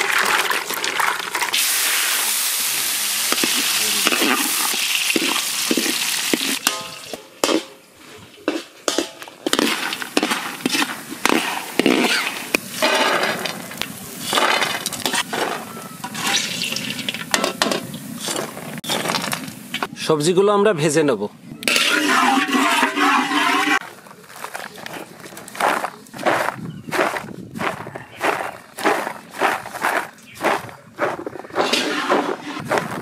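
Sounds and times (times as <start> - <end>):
food sizzling in hot oil: 0.0 - 7.3, 9.5 - 19.9, 21.7 - 23.8
metal ladle scraping a pan: 8.4 - 19.9, 21.6 - 23.8, 31.5 - 32.7.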